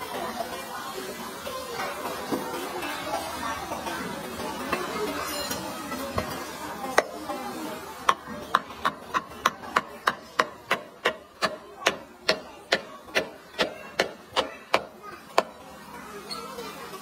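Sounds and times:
knife chopping on wooden board: 0:08.1 - 0:15.5.

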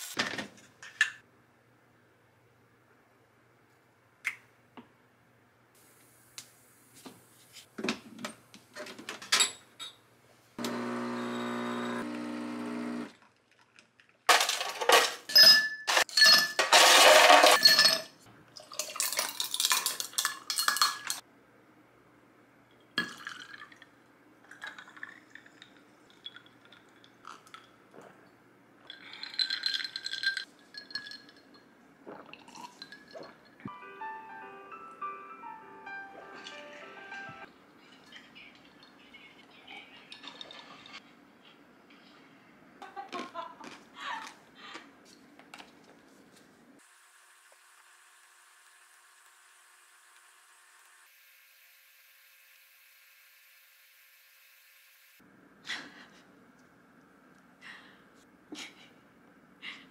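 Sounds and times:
machine humming: 0:10.6 - 0:13.1
ice cubes clinking in glass: 0:14.3 - 0:21.2, 0:28.9 - 0:31.6
water pouring over ice: 0:18.6 - 0:21.0.

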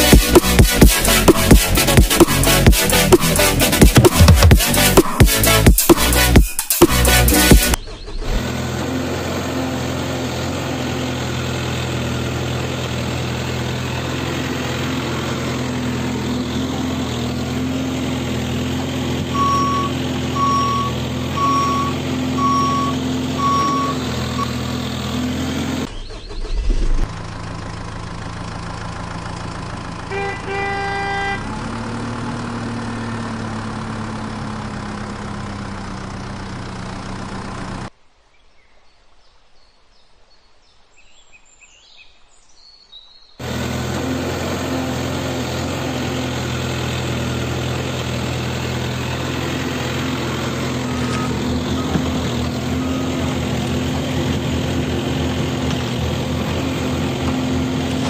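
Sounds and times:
heavy vehicle engine running: 0:00.0 - 0:38.0, 0:43.4 - 0:58.0
reversing beeper: 0:19.3 - 0:24.7, 0:50.8 - 0:53.4.

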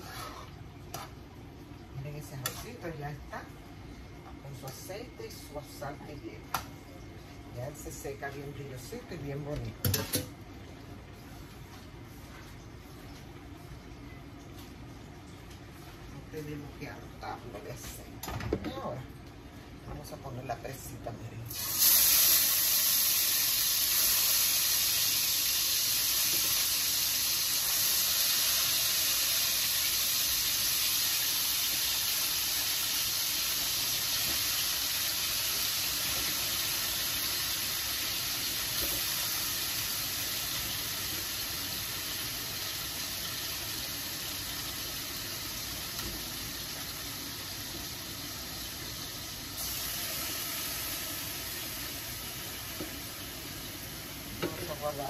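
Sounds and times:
chicken sizzling in hot oil: 0:21.5 - 0:55.0.

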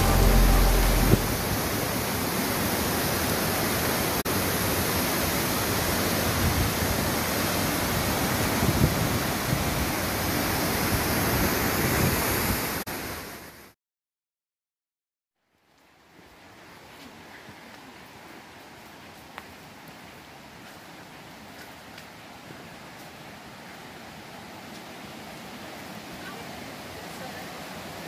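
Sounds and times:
music: 0:00.0 - 0:01.7
water rushing in creek and waterfall: 0:00.0 - 0:13.8, 0:16.1 - 0:28.0.

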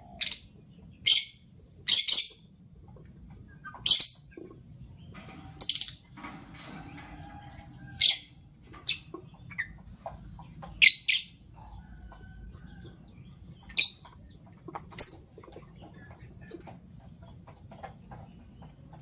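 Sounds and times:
lovebird chirping: 0:00.0 - 0:02.5, 0:03.5 - 0:05.0, 0:10.6 - 0:11.8, 0:12.6 - 0:15.4.

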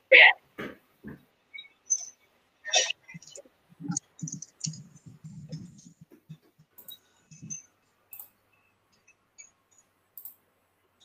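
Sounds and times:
faint clicks and taps: 0:03.0 - 0:10.4.

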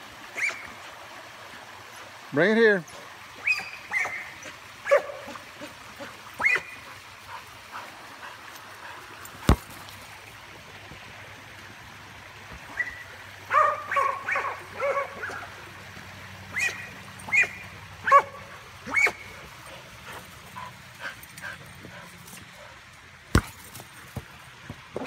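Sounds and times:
dog yipping and barking: 0:00.4 - 0:00.7, 0:03.4 - 0:05.4, 0:06.4 - 0:06.8, 0:12.7 - 0:15.5, 0:16.5 - 0:19.3.

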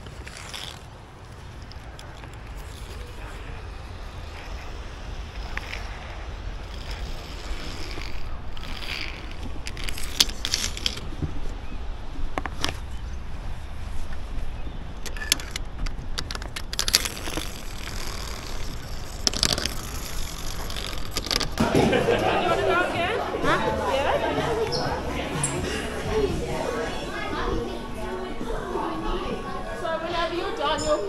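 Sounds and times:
wind rumbling on microphone: 0:00.0 - 0:21.6.

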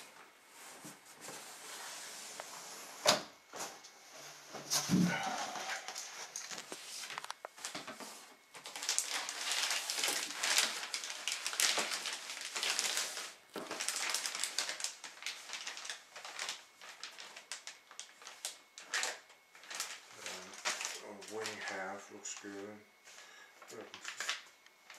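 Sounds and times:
plastic bags crinkling: 0:04.8 - 0:22.7, 0:23.6 - 0:24.9.

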